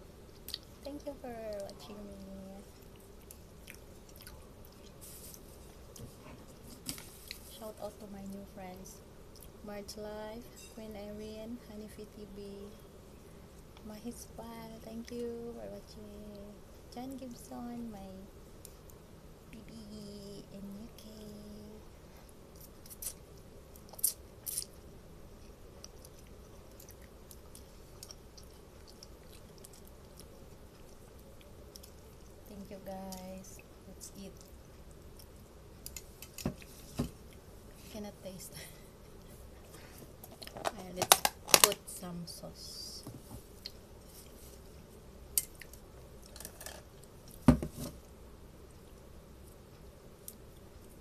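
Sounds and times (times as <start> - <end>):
wet mouth clicks: 0.4 - 0.7
person chewing noodles: 2.7 - 5.9, 22.5 - 32.5.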